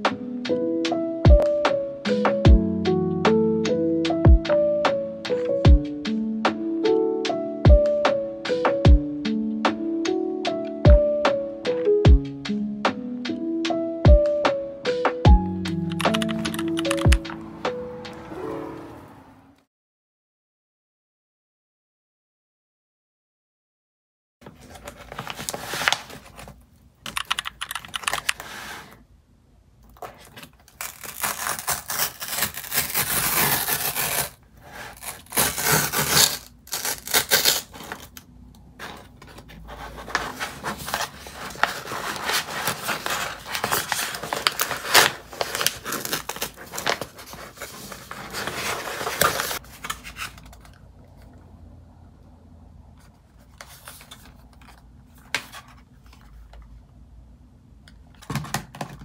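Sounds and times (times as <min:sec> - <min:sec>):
paper mailer tearing: 0:30.1 - 0:38.2, 0:40.0 - 0:50.4.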